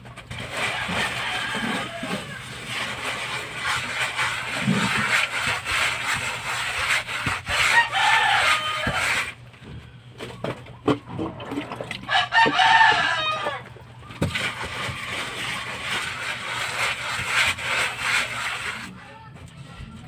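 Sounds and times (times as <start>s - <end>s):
trowel scraping mortar on concrete: 0.0s - 9.4s, 14.2s - 19.0s
rooster crowing: 0.6s - 2.5s, 7.6s - 9.3s, 12.0s - 13.7s.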